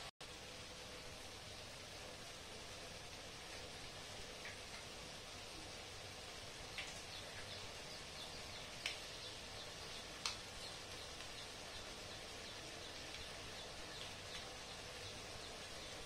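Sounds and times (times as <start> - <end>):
vegetables sizzling in a pan: 0.0 - 16.0
sharp frying pops: 2.2 - 16.0.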